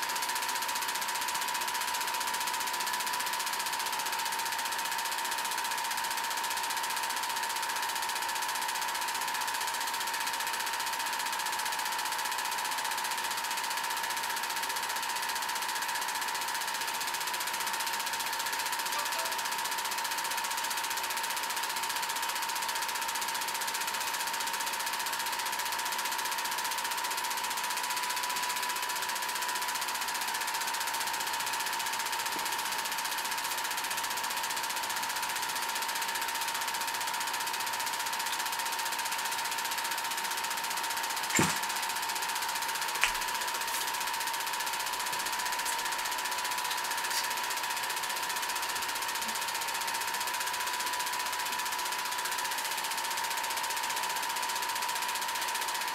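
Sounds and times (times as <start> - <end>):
film projector clatter: 0.0 - 55.9
projector whine: 28.5 - 50.5.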